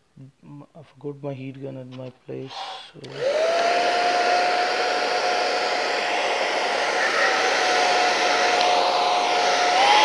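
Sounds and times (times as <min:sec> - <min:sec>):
hair dryer running: 0:02.5 - 0:10.0.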